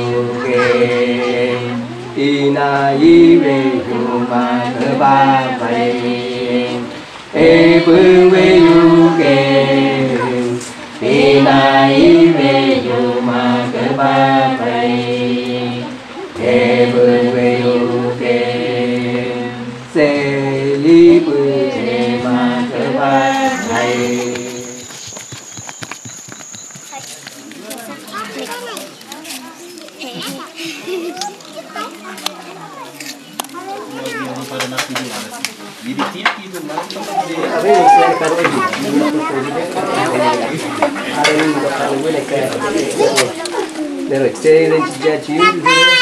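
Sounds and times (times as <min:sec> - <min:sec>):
group chanting unaccompanied: 0:00.0 - 0:24.9, 0:37.0 - 0:46.0.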